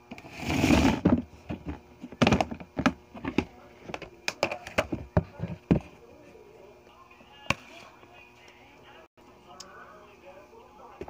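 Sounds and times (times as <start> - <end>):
rushing scrape in plastic bin: 0.2 - 1.2
plastic items clicking and knocking: 1.0 - 5.9.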